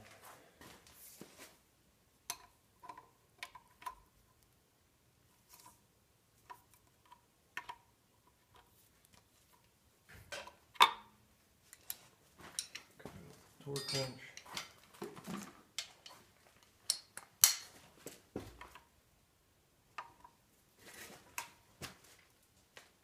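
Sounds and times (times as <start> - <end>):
sharp metal clank: 13.7 - 14.2
metallic ring: 13.7 - 14.3.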